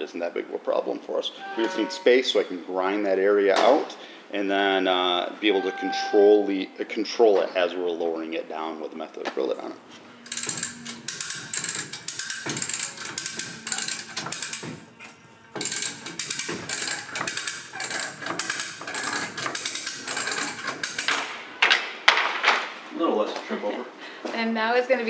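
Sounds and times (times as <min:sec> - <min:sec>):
ratchet clicking: 0:10.2 - 0:14.9, 0:15.6 - 0:21.3.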